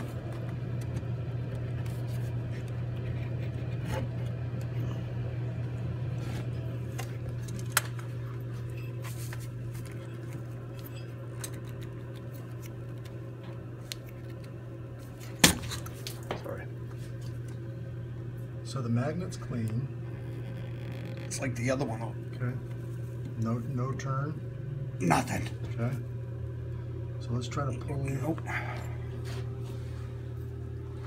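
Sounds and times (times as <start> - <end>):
steady low hum: 0.0 - 31.0
small clicks and scrapes: 20.2 - 21.4.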